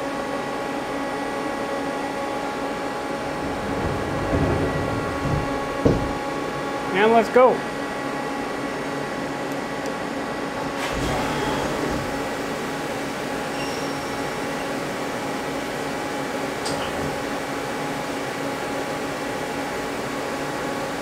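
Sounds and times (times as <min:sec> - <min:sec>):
lathe machine hum: 0:00.0 - 0:13.5
coolant spraying rush: 0:10.7 - 0:13.4.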